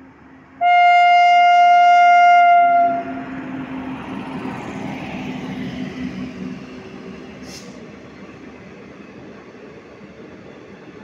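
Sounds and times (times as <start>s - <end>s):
train rumbling past: 0.0s - 11.0s
locomotive horn blast: 0.6s - 3.3s.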